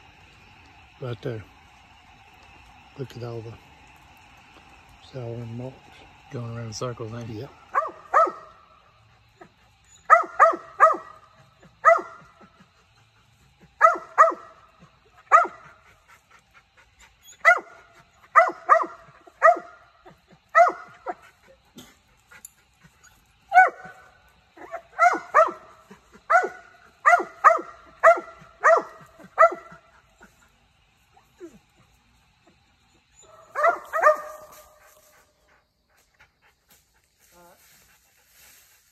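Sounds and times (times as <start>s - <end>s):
dog barking: 7.7s - 8.6s, 9.4s - 12.4s, 13.8s - 14.6s, 15.2s - 15.7s, 17.4s - 19.8s, 20.5s - 21.2s, 23.5s - 24.0s, 24.6s - 29.8s, 33.2s - 34.6s.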